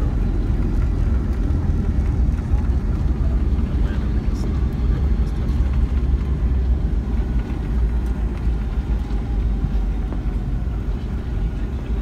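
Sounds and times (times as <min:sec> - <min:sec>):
airplane wheels and engines rumbling: 0:00.0 - 0:12.0.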